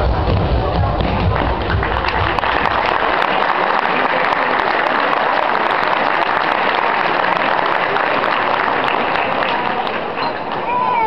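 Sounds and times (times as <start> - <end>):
background music: 0.0 - 3.2
audience applauding: 1.1 - 11.0.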